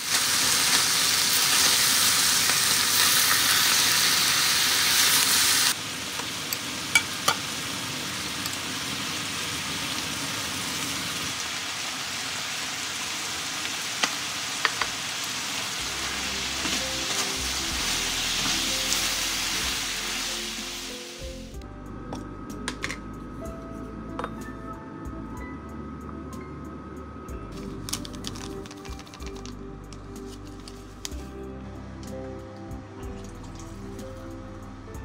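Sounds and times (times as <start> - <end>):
food sizzling in a frying pan: 0.0 - 21.6.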